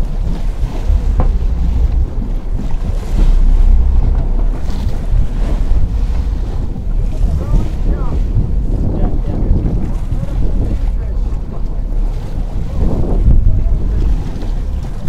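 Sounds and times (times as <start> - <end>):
churning water splashing: 0.0 - 15.0
wind buffeting microphone: 0.0 - 15.0.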